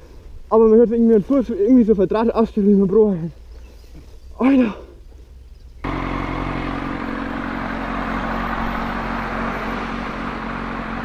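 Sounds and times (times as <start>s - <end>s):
traffic noise: 0.0s - 11.0s
motorcycle engine running: 5.8s - 11.0s.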